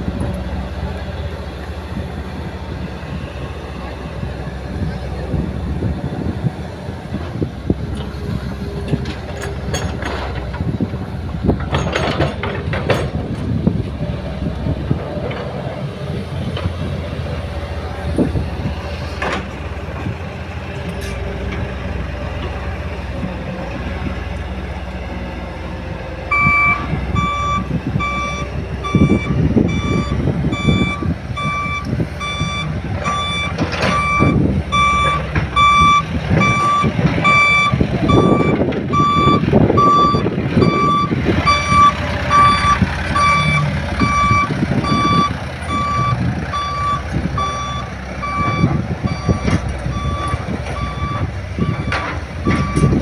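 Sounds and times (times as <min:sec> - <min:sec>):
diesel engines running: 0:00.0 - 0:53.0
backup alarm beeping: 0:26.3 - 0:53.0.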